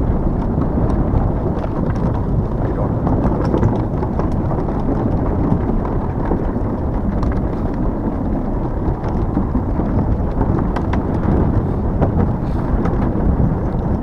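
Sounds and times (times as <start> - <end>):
tyres rolling rumble: 0.0 - 14.0
wind on microphone: 0.0 - 14.0
light clicks and knocks: 0.4 - 14.0.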